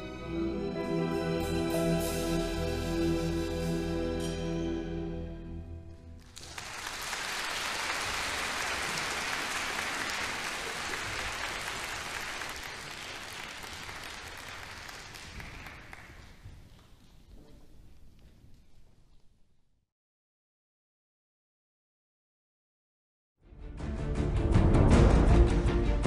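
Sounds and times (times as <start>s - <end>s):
audience applause: 6.2s - 16.5s.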